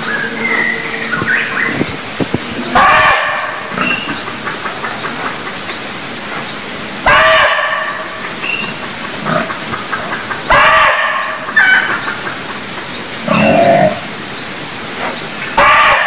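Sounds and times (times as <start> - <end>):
deer barking: 2.7 - 3.6, 7.0 - 8.0, 10.5 - 11.7, 15.6 - 16.0.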